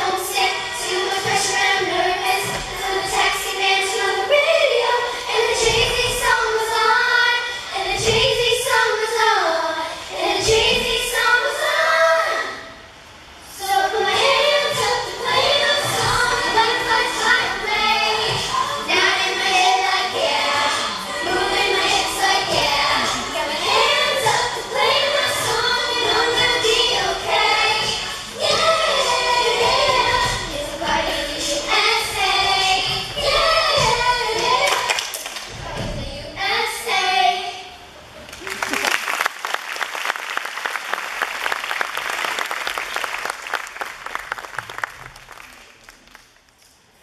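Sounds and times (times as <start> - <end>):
girls singing together: 0.0 - 38.0
audience applauding: 38.3 - 46.6.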